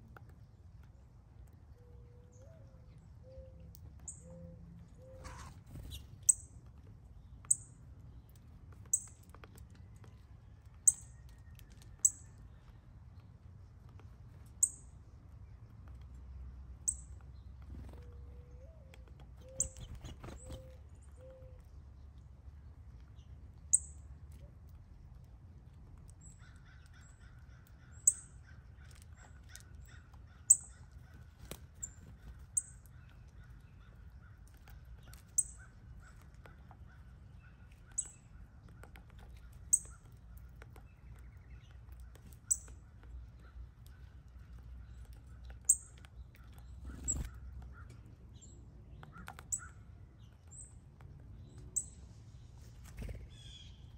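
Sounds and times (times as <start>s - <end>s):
bird chipping: 18.6s - 21.4s, 26.3s - 50.6s.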